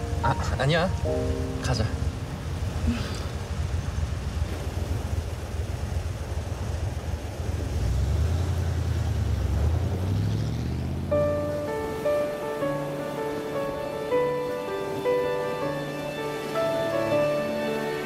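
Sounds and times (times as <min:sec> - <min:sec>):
music: 0:00.0 - 0:02.3, 0:11.1 - 0:18.0
car engine and road noise: 0:00.0 - 0:18.0.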